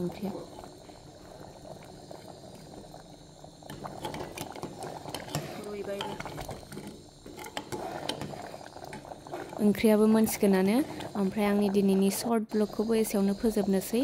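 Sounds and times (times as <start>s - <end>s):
thick porridge simmering: 0.0s - 14.0s
ladle scraping metal pot: 3.8s - 12.0s.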